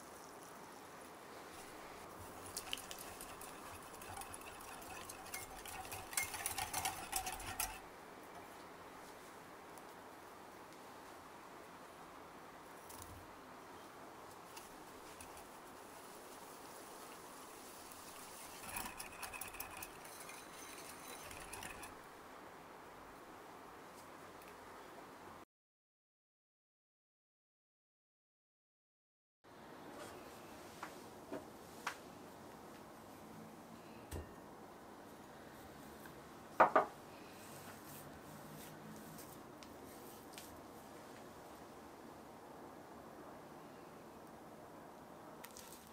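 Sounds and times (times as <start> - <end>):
spatula scraping bowl: 2.2 - 7.8, 15.0 - 15.6, 17.9 - 22.0
whisk stirring batter: 2.2 - 7.8, 14.6 - 15.8, 17.6 - 22.0
whisk clinking against glass: 2.3 - 7.8, 15.1 - 15.6, 18.0 - 22.0.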